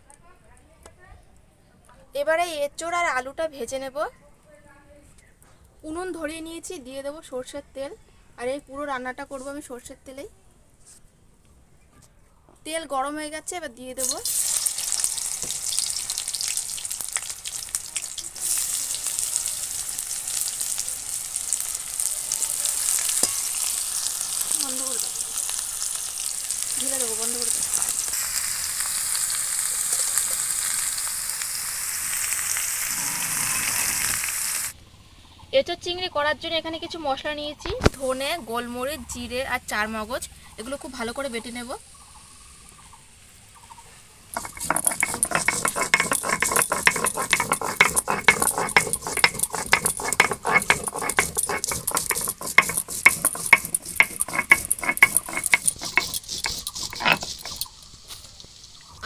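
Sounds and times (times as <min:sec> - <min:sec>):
stone roller grinding spices: 0:14.0 - 0:25.2, 0:26.7 - 0:28.2, 0:44.3 - 0:58.1
food frying in oil: 0:14.0 - 0:34.8, 0:40.6 - 0:43.7, 0:44.3 - 0:59.0.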